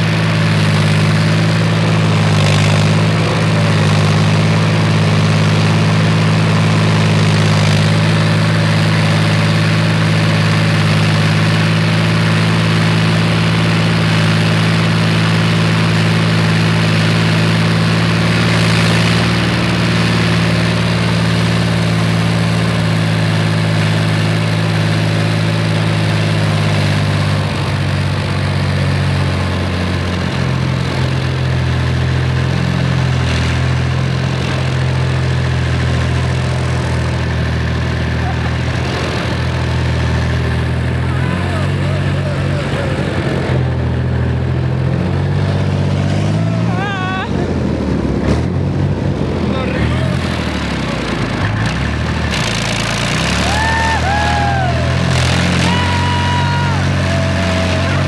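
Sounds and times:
diesel engine running: 0:00.0 - 0:58.0
track clatter: 0:00.0 - 0:58.0
wind: 0:00.0 - 0:58.0.

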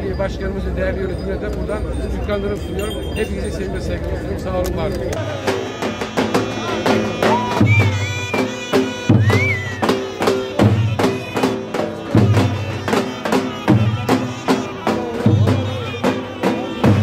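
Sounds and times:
deep drum beats: 0:05.2 - 0:17.0
reed pipe held notes: 0:05.2 - 0:17.0.

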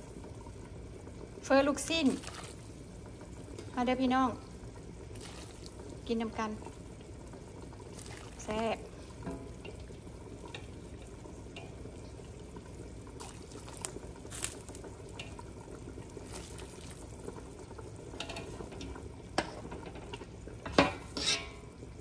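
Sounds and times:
rain hissing: 0:00.0 - 0:19.2.

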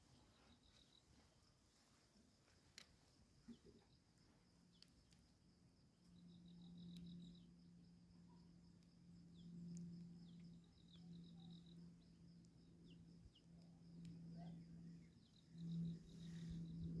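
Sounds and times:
high insect trill: 0:00.0 - 0:17.0
steady low hum: 0:00.0 - 0:17.0
bird chirps: 0:09.2 - 0:16.8.

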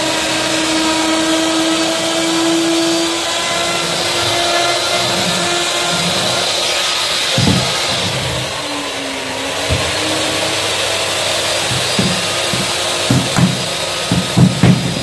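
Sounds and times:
electric router running: 0:00.0 - 0:15.0.

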